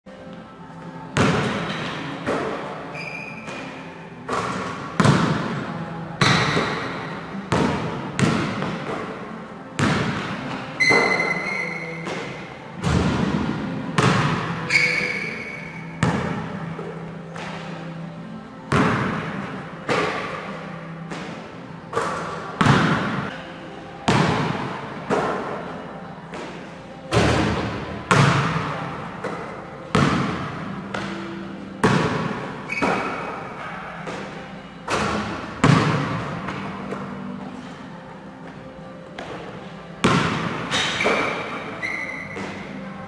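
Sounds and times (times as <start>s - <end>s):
basketball bouncing on gym floor: 1.2s - 9.2s, 9.8s - 16.6s, 18.7s - 20.5s, 21.1s - 23.3s, 24.1s - 25.5s, 26.3s - 31.2s, 31.8s - 33.4s, 34.0s - 37.0s, 40.0s - 42.7s.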